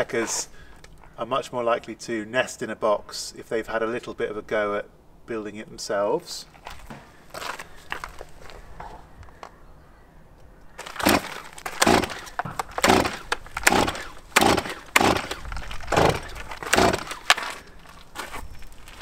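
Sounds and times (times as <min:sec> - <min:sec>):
chainsaw recoil starter cord rips: 0:10.8 - 0:17.7.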